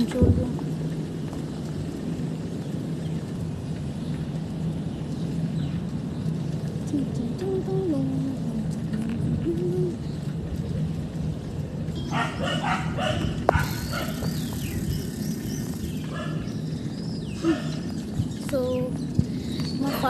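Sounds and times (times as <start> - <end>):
dog barking: 12.1 - 14.2, 16.1 - 16.5, 17.4 - 17.8.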